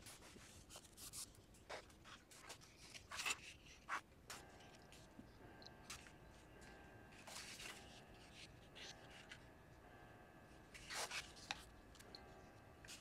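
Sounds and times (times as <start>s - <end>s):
paper rustling on a tabletop: 7.1s - 9.4s, 10.7s - 12.1s.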